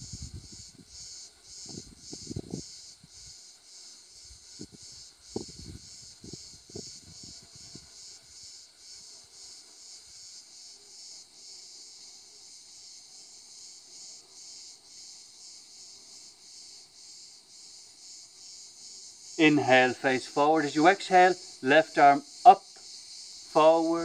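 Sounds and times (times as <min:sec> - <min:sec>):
insect chorus chirring: 0:00.0 - 0:24.0.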